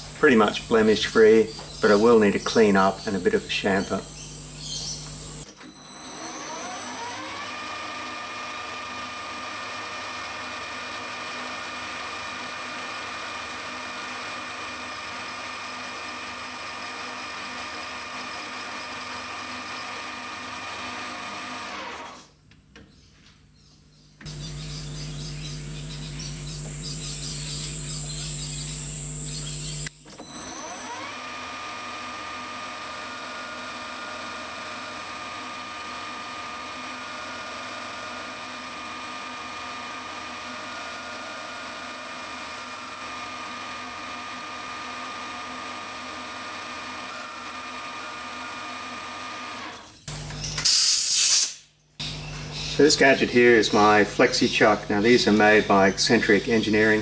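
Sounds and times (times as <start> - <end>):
steady hum with hiss: 0.0 - 7.1, 22.0 - 30.8
lathe spindle whine: 0.0 - 22.3, 24.2 - 50.4, 52.0 - 57.0.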